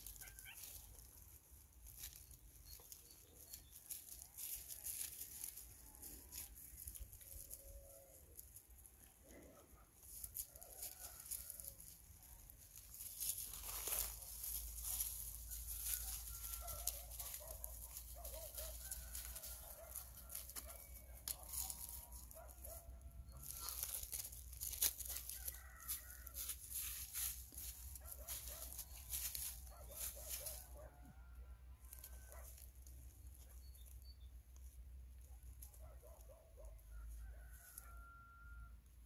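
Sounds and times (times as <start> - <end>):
dry leaves rustling and crackling: 0.0 - 9.2, 10.0 - 30.9, 31.8 - 35.9.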